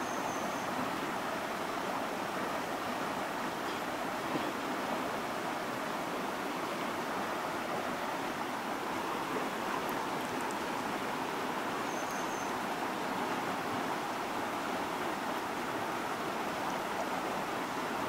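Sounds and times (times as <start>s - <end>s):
stream flowing over rocks: 0.0s - 18.0s
faint high chirps: 11.8s - 12.6s.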